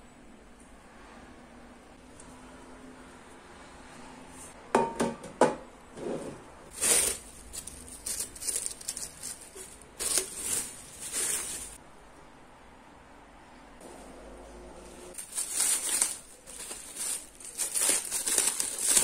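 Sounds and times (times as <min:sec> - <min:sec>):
plastic wrap crinkling: 0:06.7 - 0:11.8, 0:15.1 - 0:19.0.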